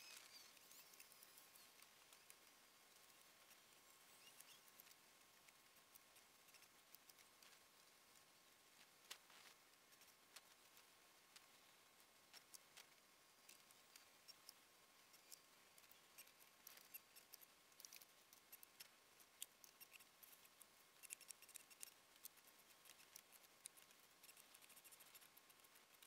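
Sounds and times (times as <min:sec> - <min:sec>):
faint steady high tone: 0:00.0 - 0:05.0
small clicks and ticks: 0:00.0 - 0:26.0.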